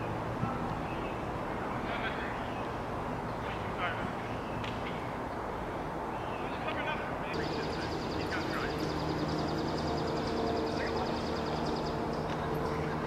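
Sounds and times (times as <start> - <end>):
high fast-pulsing trill: 7.4 - 13.0
low steady hum: 7.4 - 13.0.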